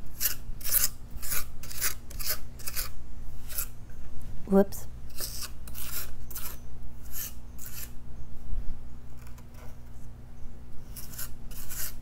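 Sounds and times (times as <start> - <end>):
putty knife scraping filler: 0.1 - 3.7, 5.1 - 8.0, 10.9 - 12.0.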